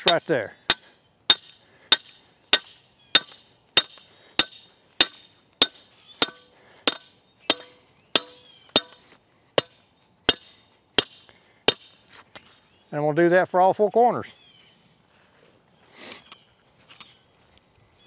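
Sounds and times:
hammer striking steel post: 0:00.0 - 0:09.0, 0:09.6 - 0:12.0.

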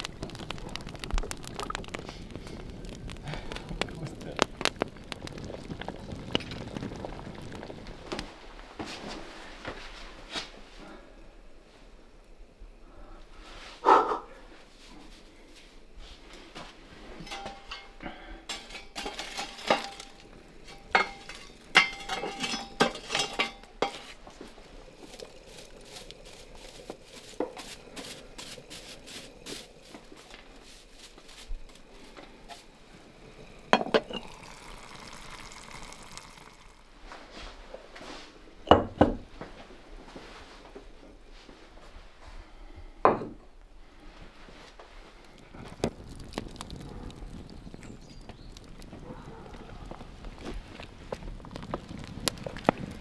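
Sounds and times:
metal utensils clinking: 0:17.3 - 0:24.1.

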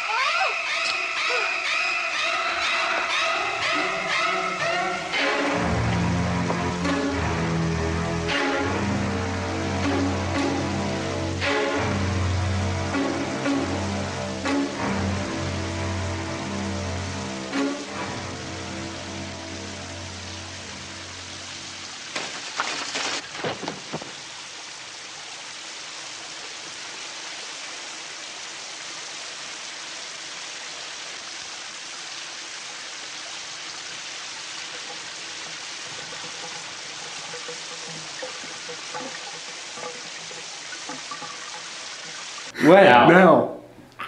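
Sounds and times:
shower curtain clattering and ripping: 0:22.1 - 0:24.1
shower spray running into tub: 0:33.3 - 0:42.5.

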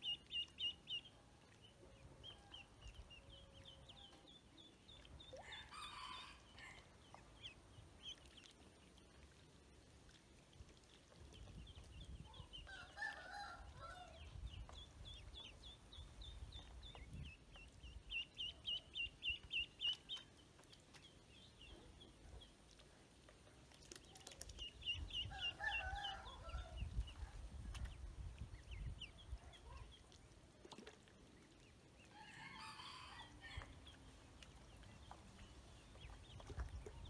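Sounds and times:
ducklings peeping: 0:00.0 - 0:09.4, 0:13.6 - 0:22.8, 0:23.8 - 0:32.1, 0:33.2 - 0:37.0.

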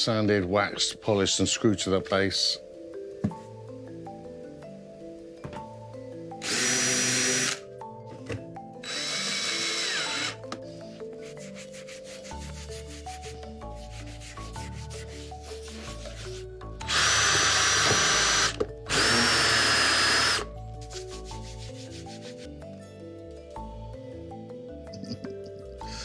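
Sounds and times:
light melodic music: 0:00.0 - 0:26.0
drill driving screws: 0:06.4 - 0:07.6, 0:08.8 - 0:10.4, 0:16.8 - 0:20.5
rhythmic rubbing on wood: 0:09.0 - 0:22.6.

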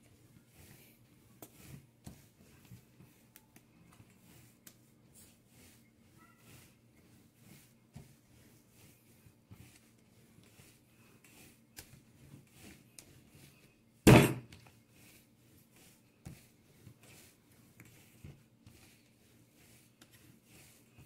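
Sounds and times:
dough rubbing and tapping: 0:00.0 - 0:21.0
dough slapped on table: 0:14.1 - 0:14.6.

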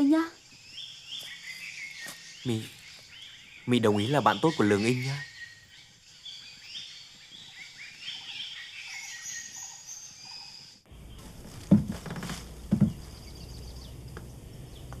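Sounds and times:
small birds chirping: 0:00.0 - 0:15.0
low steady hum: 0:10.9 - 0:15.0
dull knocks on wooden cabinet: 0:11.7 - 0:13.0.

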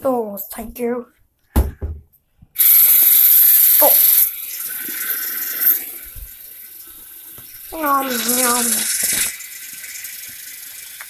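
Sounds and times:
tap water gushing into basin: 0:02.6 - 0:11.0.

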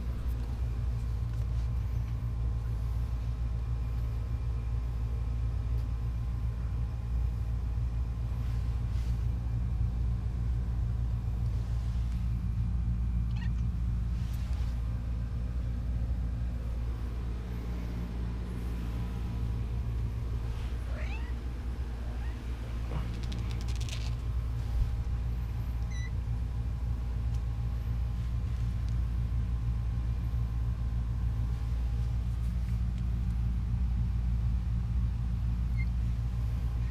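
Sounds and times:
steady low rumble: 0:00.0 - 0:36.9
kittens mewing: 0:13.3 - 0:13.9, 0:20.7 - 0:24.0.

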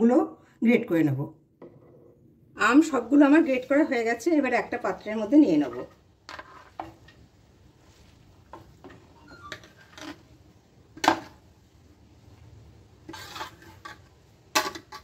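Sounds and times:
food scraped off a plate: 0:13.0 - 0:15.0.

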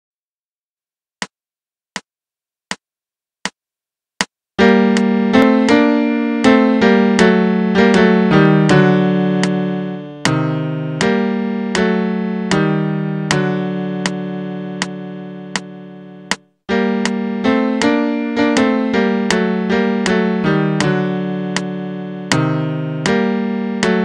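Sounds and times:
count-in clicks: 0:04.6 - 0:05.8, 0:13.3 - 0:17.2, 0:20.8 - 0:24.0
piano chords: 0:04.6 - 0:24.0.

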